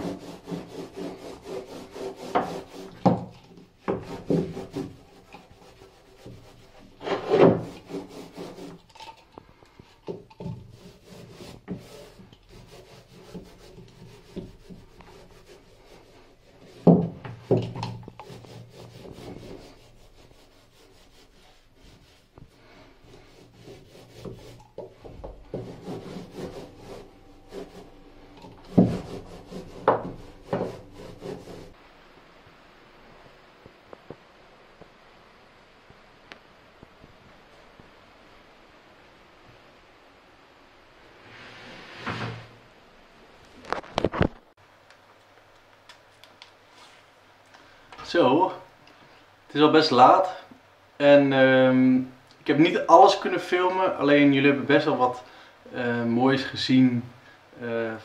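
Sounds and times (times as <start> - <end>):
paintbrush strokes on wood: 0.0 - 31.8.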